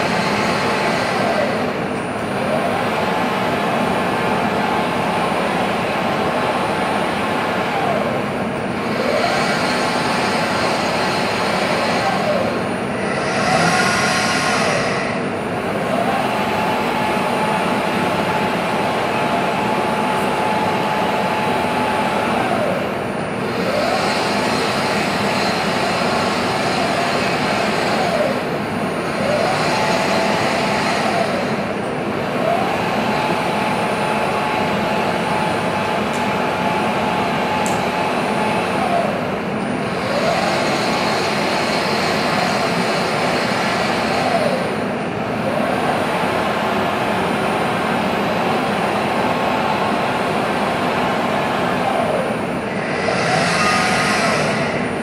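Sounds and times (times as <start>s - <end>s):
steady rushing noise: 8.4s - 23.4s, 46.0s - 55.0s
robot arm servo whining: 9.0s - 15.3s, 51.8s - 55.0s.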